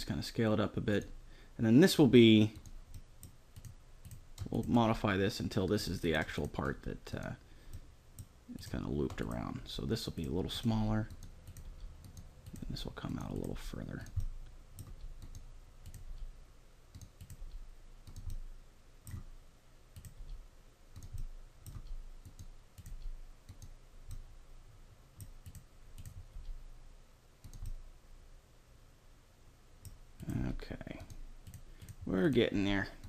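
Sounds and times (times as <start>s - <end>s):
computer mouse clicks: 2.5s - 4.8s, 11.0s - 16.3s, 16.9s - 19.3s, 20.0s - 24.3s, 25.2s - 26.6s, 27.4s - 27.8s, 29.8s - 32.0s.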